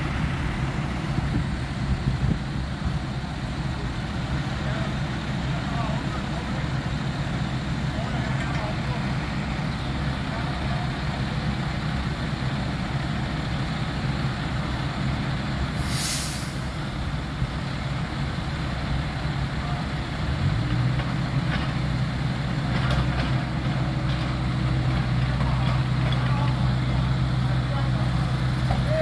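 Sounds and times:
heavy machinery engine running: 0.0 - 29.0
hiss burst: 15.7 - 16.9.

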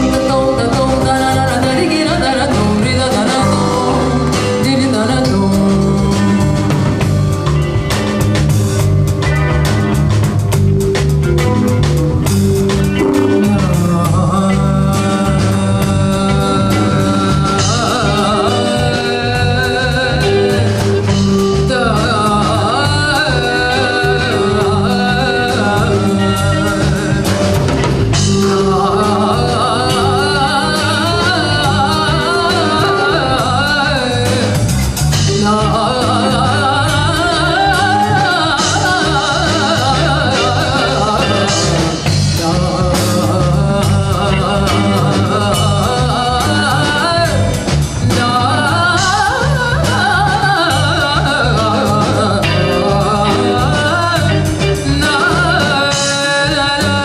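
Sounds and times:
woman singing: 0.0 - 8.0, 12.9 - 57.0
electric bass guitar: 0.0 - 57.0
steady beat: 10.5 - 14.5.

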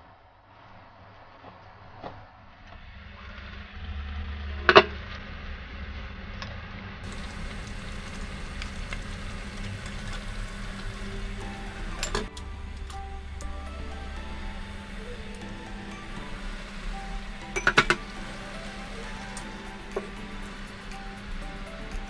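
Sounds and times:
water boiling in a pot: 7.0 - 22.0.

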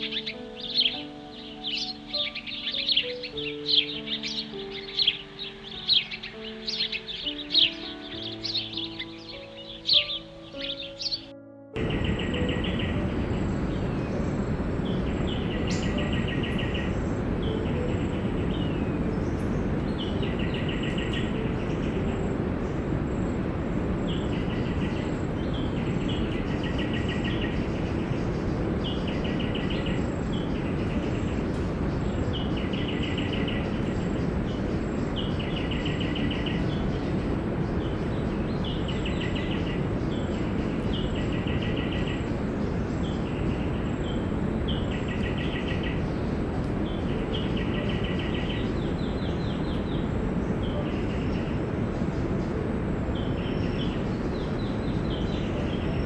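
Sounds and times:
bird trilling call: 0.0 - 21.4
steady background noise: 0.0 - 56.0.

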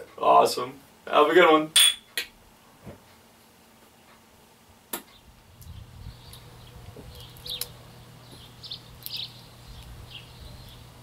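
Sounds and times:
small birds chirping: 5.0 - 11.0
low outdoor rumble: 5.2 - 11.0.

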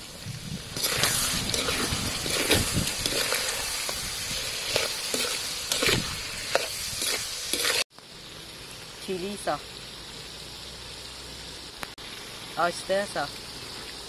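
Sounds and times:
meat sizzling in a wok: 0.0 - 14.0
metal spatula scraping a wok: 0.7 - 7.8.

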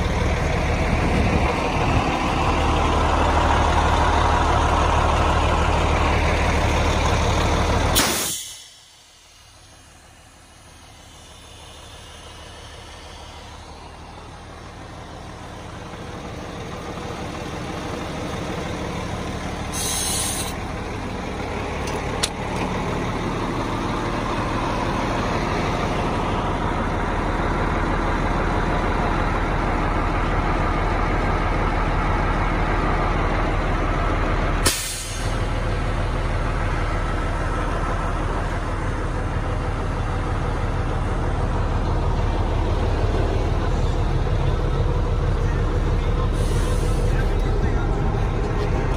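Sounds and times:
diesel truck engine idling: 0.0 - 48.9
brief high hiss: 8.0 - 9.0.

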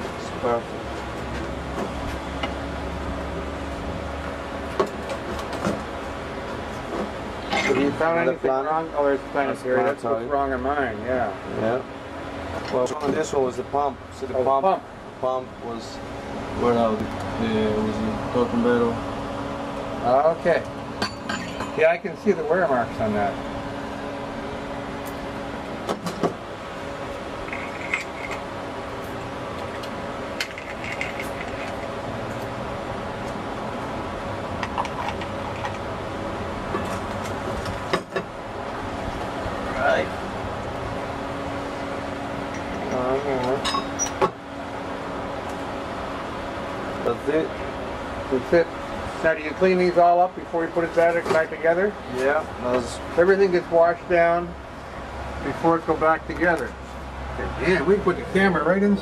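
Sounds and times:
low mechanical hum: 0.0 - 59.0
metal parts clinking: 27.5 - 28.4, 30.4 - 31.8.

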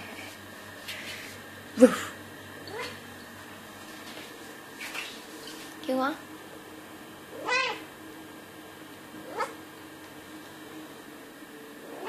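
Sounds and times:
cat calling: 7.4 - 7.8, 9.3 - 9.6.

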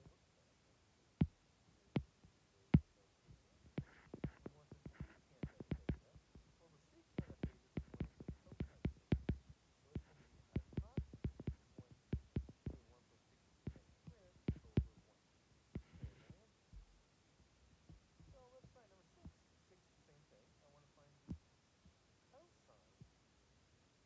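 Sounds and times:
stylus tapping on glass screen: 3.8 - 6.4, 7.2 - 12.9, 13.7 - 15.0, 15.8 - 16.9.

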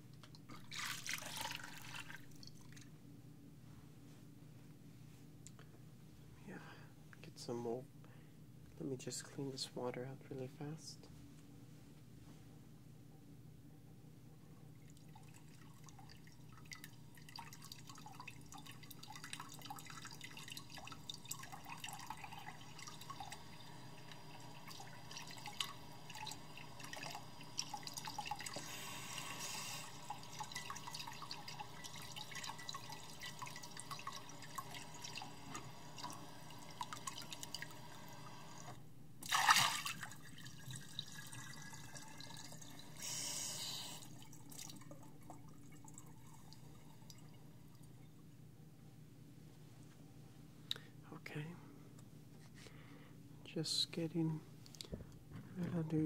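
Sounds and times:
water splashes: 39.2 - 40.9.

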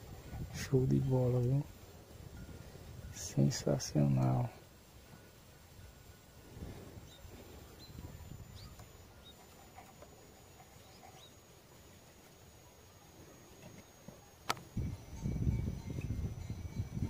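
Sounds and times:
faint bird chirps: 7.0 - 14.4.

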